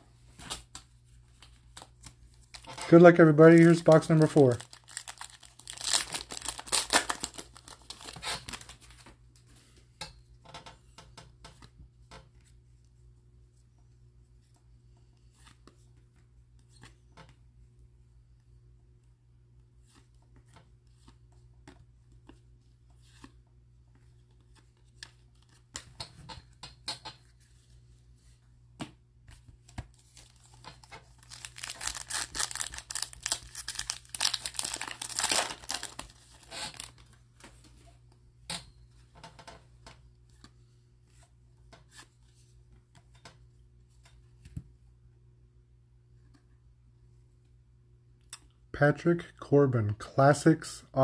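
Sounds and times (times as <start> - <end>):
foil wrapper tearing and crinkling: 3.5 - 8.9, 31.1 - 37.0.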